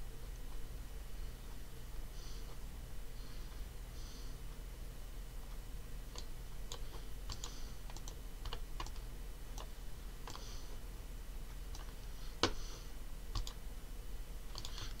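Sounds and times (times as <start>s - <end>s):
mouse and keyboard clicks: 6.2s - 9.7s, 14.5s - 15.0s.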